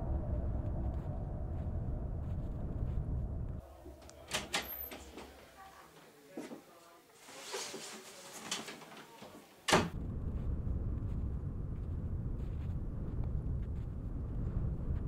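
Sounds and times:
steady low rumble: 0:00.0 - 0:04.5, 0:09.9 - 0:15.0.

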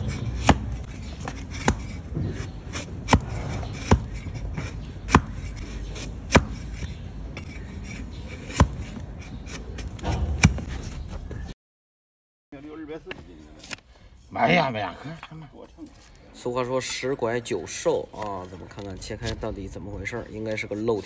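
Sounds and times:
blade scraping hoof: 0:00.0 - 0:11.2, 0:17.7 - 0:21.0
hoof cutter chopping knocks: 0:00.2 - 0:05.5, 0:06.3 - 0:06.6, 0:09.9 - 0:10.7.

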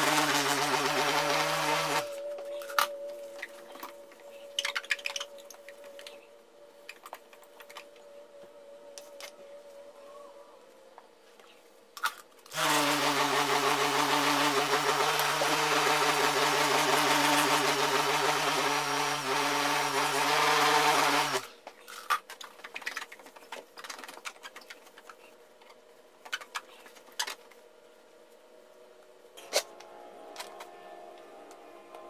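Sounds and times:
electric buffer running: 0:00.0 - 0:02.2, 0:12.5 - 0:21.5.

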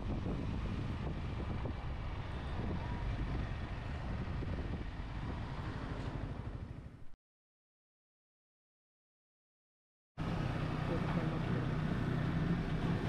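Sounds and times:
wind rushing over microphone: 0:00.0 - 0:07.1.

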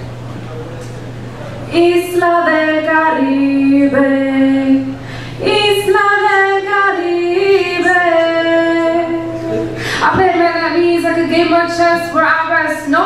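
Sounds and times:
woman singing solo: 0:01.7 - 0:13.0
woman breathing in: 0:05.0 - 0:05.4, 0:09.7 - 0:10.1.

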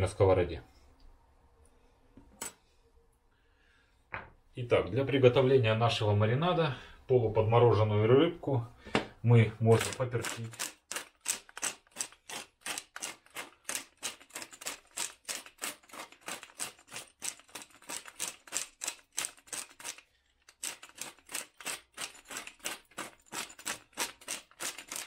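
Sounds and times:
pepper mill grinding: 0:09.6 - 0:25.0.

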